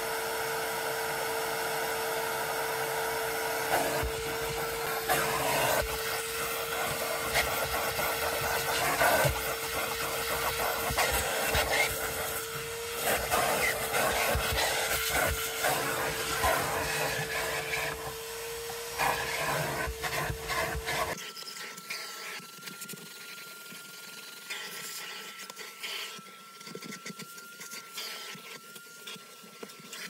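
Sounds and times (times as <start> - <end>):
vacuum tool scraping carpet: 0.0 - 22.4
vacuum whining: 0.0 - 22.4.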